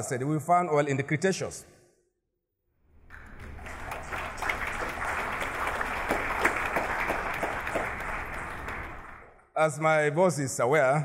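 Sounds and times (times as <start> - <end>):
audience applauding: 3.0 - 9.4.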